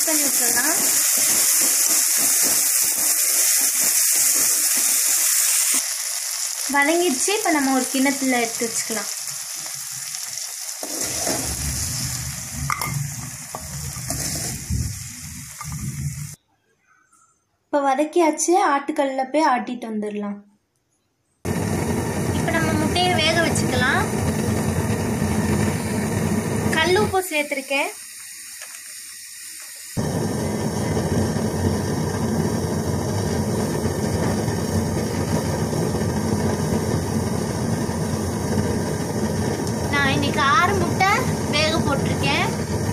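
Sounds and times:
pan of water hissing on stove: 0:00.0 - 0:16.4, 0:21.5 - 0:42.9
vegetables sizzling in hot oil: 0:00.0 - 0:16.4, 0:21.5 - 0:42.9
metal ladle scraping a pan: 0:12.7 - 0:14.7.

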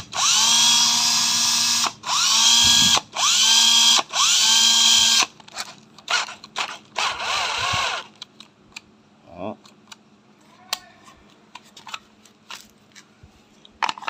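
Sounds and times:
cordless drill motor whining: 0:00.0 - 0:05.3, 0:06.1 - 0:08.1.

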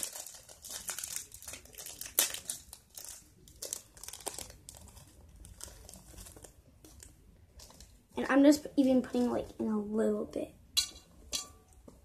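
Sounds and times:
plastic packet crinkling: 0:00.0 - 0:08.0.

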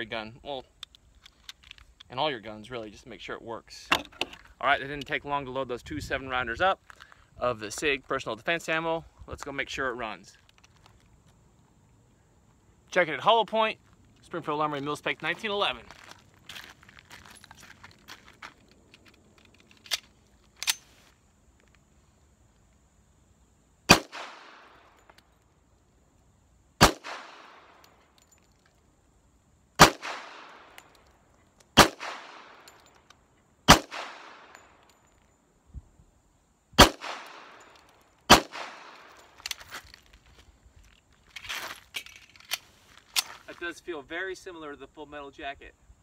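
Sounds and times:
pistol shots with echo: 0:23.9 - 0:24.7, 0:26.8 - 0:27.7, 0:29.8 - 0:30.8, 0:31.8 - 0:32.7, 0:33.7 - 0:34.5, 0:36.8 - 0:37.6, 0:38.3 - 0:39.0.

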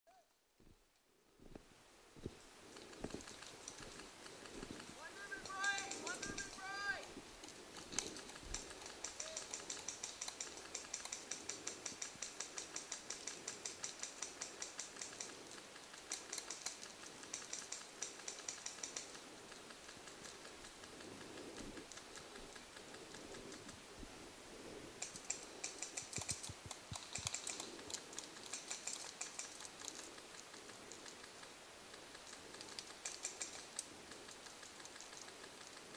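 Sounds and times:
paintball markers firing: 0:02.9 - 0:19.2.

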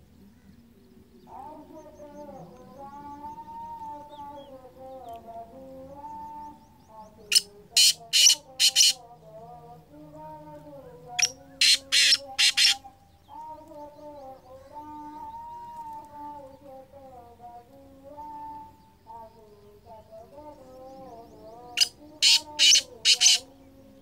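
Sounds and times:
bird calling harsh notes: 0:07.3 - 0:09.0, 0:11.2 - 0:12.8, 0:21.8 - 0:23.5.

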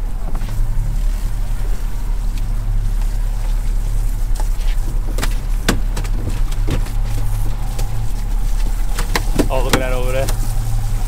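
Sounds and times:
outboard motor idling: 0:00.0 - 0:11.0
sharp knocks: 0:05.2 - 0:07.0.

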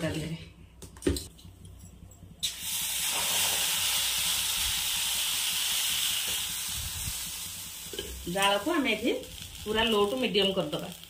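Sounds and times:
batter sizzling in hot pan: 0:02.4 - 0:11.0.

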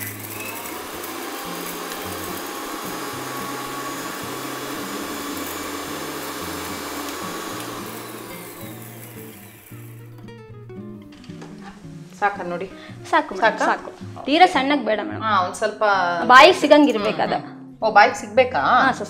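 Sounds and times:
mixer grinder grinding spices: 0:00.0 - 0:10.2.

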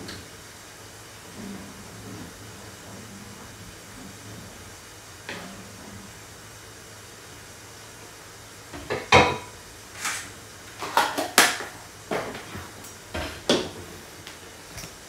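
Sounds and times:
cookware knocking and clicking: 0:08.8 - 0:09.5.

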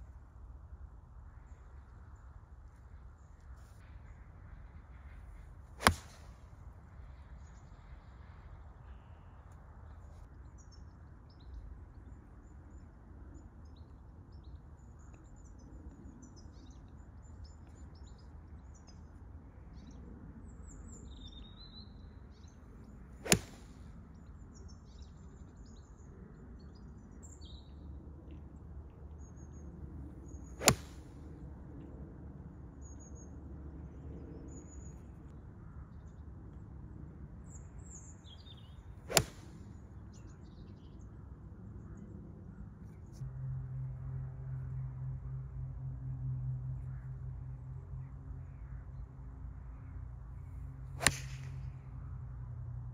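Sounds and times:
golf club striking ball: 0:05.8 - 0:06.3, 0:23.2 - 0:23.8, 0:30.6 - 0:31.0, 0:39.1 - 0:39.5, 0:51.0 - 0:51.6.

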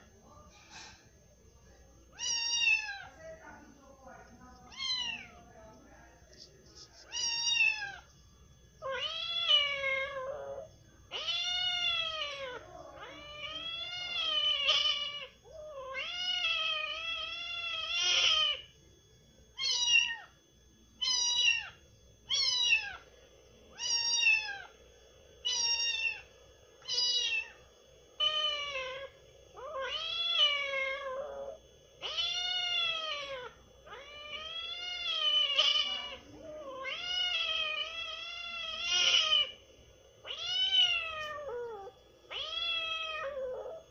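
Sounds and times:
kitten meowing: 0:02.2 - 0:03.1, 0:04.7 - 0:05.3, 0:07.0 - 0:08.0, 0:08.8 - 0:18.6, 0:21.0 - 0:21.7, 0:22.3 - 0:23.0, 0:23.8 - 0:24.7, 0:25.4 - 0:27.6, 0:28.2 - 0:39.6, 0:40.3 - 0:43.8.

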